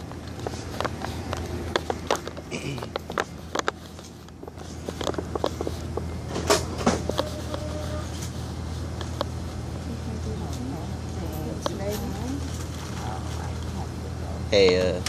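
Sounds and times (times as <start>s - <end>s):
phone being handled: 0.0s - 7.8s.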